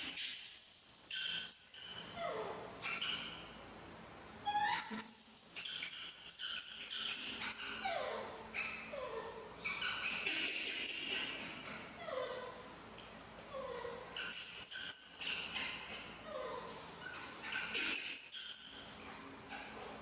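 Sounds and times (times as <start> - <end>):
monkey squealing: 4.5 - 12.4.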